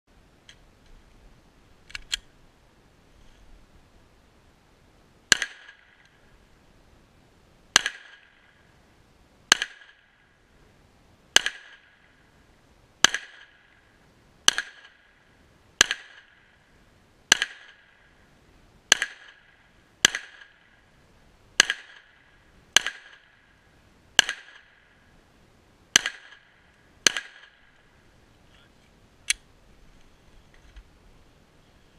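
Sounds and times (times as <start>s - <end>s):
pistol shots with echo: 7.8s - 8.4s, 11.4s - 12.0s, 13.0s - 13.6s, 17.3s - 18.0s, 18.9s - 20.8s, 21.6s - 23.4s, 24.2s - 24.8s, 25.9s - 27.7s.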